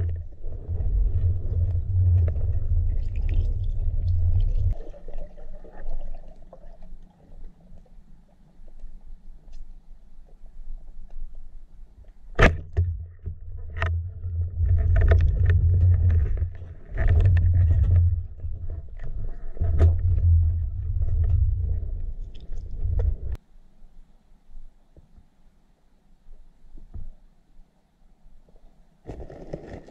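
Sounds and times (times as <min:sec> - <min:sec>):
low underwater rumbling: 0:00.0 - 0:09.2, 0:12.6 - 0:23.4.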